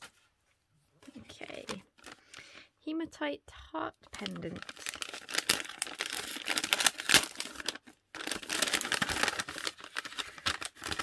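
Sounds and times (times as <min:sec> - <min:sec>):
paper gift bag rustling: 0:01.5 - 0:02.6, 0:04.2 - 0:11.0.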